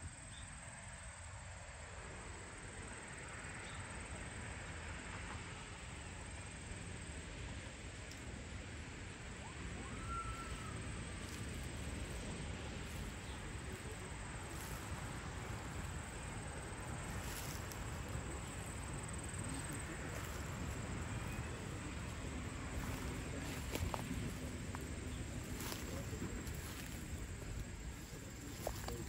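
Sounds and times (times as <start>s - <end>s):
low rumble and hiss: 0.0s - 29.0s
faint high whistle: 9.4s - 10.9s.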